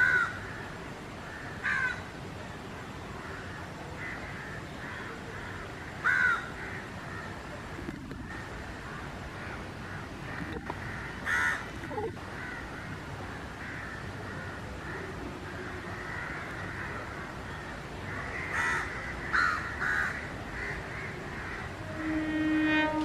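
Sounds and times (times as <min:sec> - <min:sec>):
crow cawing: 0:00.0 - 0:00.6, 0:01.3 - 0:02.0, 0:04.0 - 0:07.3, 0:10.6 - 0:11.7, 0:12.3 - 0:13.0, 0:13.6 - 0:21.8
steady background noise: 0:00.0 - 0:23.0.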